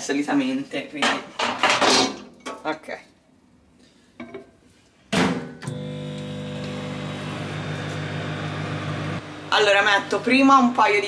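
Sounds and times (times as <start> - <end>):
microwave humming: 5.6 - 10.9.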